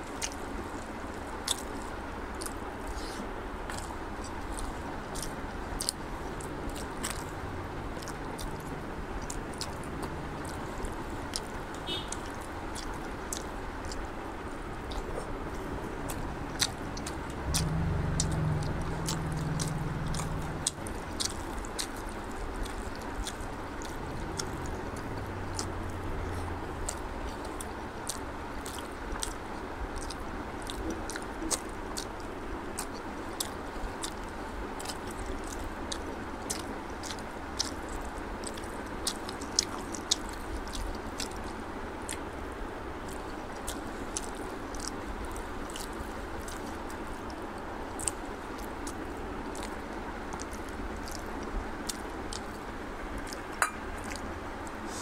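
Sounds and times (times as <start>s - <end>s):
wet chewing and lip smacking: 0.0s - 55.0s
low hum: 14.4s - 28.4s
mouth clicks: 14.8s - 29.4s.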